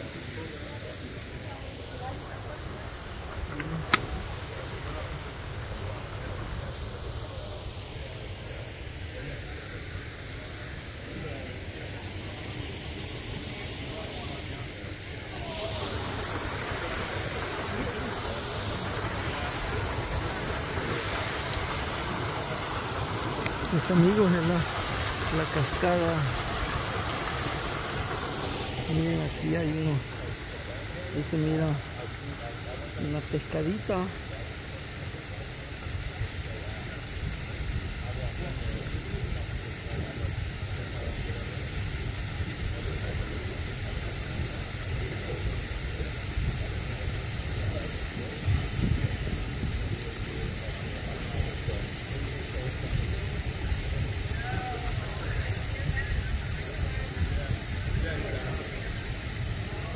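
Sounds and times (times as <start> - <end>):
waterfall pouring into pool: 0.0 - 59.9.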